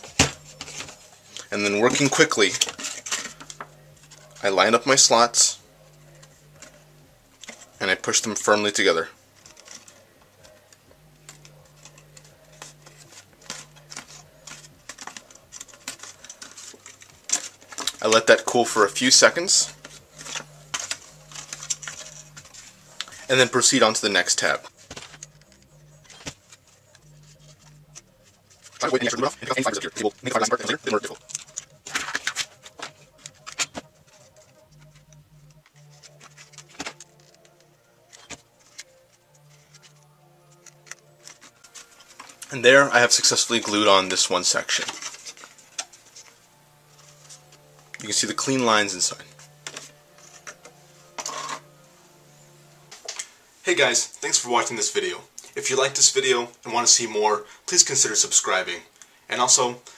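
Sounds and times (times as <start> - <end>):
cardstock rustling and crinkling: 0.0 - 51.7
faint low hum: 0.0 - 56.7.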